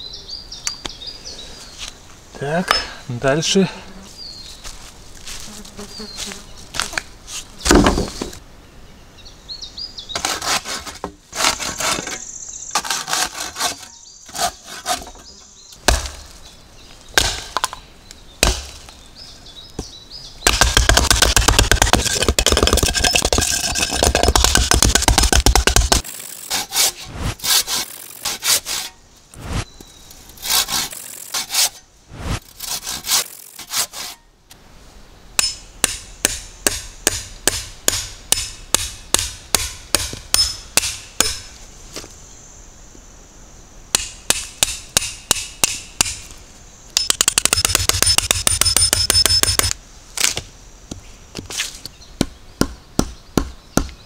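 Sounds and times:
wood knocking and chopping: 0:07.6 - 0:08.4, 0:15.8 - 0:16.3, 0:17.2 - 0:17.8, 0:18.4 - 0:19.0, 0:19.8 - 0:26.1, 0:35.4 - 0:41.5, 0:47.0 - 0:51.6, 0:52.2 - 0:54.0
hand-sawing wood: 0:10.2 - 0:12.2, 0:12.8 - 0:15.3, 0:20.7 - 0:29.0, 0:30.4 - 0:31.8, 0:32.4 - 0:34.2.

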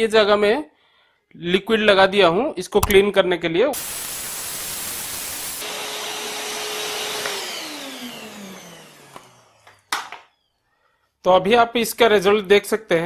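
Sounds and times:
vacuum cleaner whine: 0:03.8 - 0:10.5.

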